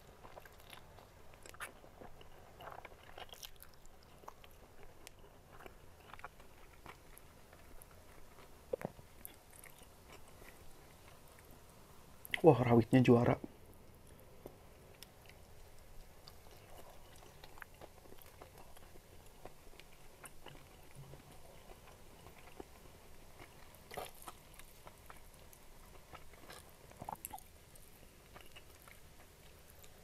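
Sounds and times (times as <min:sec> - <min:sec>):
close chewing of crispy food: 0:00.0 - 0:12.5, 0:13.4 - 0:30.0.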